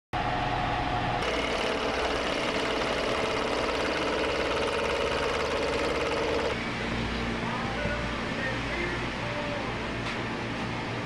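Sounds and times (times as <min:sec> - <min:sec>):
milling machine cutting metal: 0:01.2 - 0:06.6.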